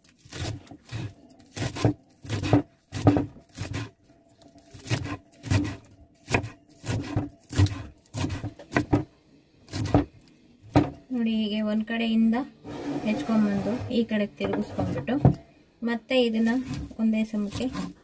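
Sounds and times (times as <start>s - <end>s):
knife chopping spinach: 0.1s - 3.9s, 4.7s - 9.0s, 16.4s - 18.0s.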